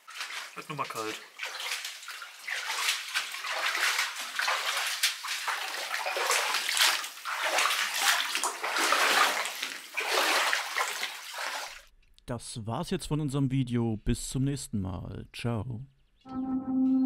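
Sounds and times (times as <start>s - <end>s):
boots sloshing through water: 0.0s - 11.9s.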